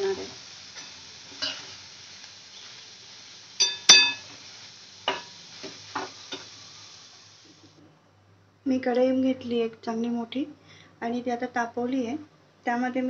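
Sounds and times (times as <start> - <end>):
metal spatula clinking against pan: 3.6 - 4.2.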